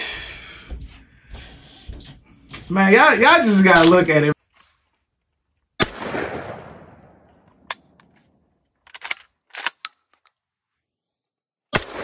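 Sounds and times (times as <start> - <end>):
shotgun blast echo: 5.8 - 7.3, 11.7 - 12.0.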